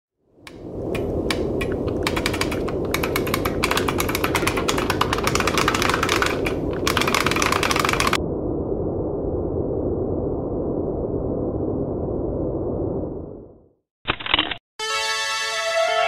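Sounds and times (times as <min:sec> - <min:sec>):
steady low rumble: 0:00.4 - 0:13.7
fast typing on computer keyboard: 0:01.0 - 0:08.2.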